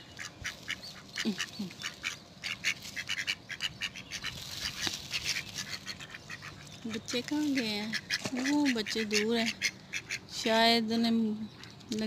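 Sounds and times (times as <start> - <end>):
ducks quacking rapidly: 0.1 - 10.4.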